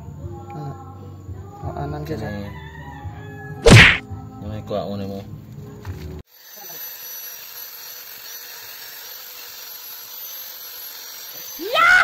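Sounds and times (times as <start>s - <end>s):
angle grinder whining: 6.3s - 12.0s.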